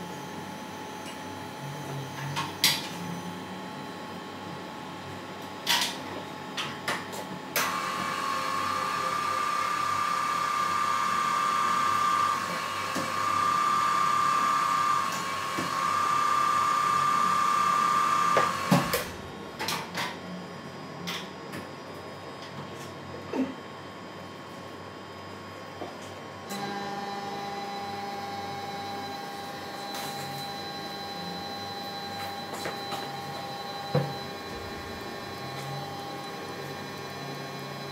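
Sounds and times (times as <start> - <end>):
drill press motor whining: 7.6 - 19.2, 26.5 - 37.9.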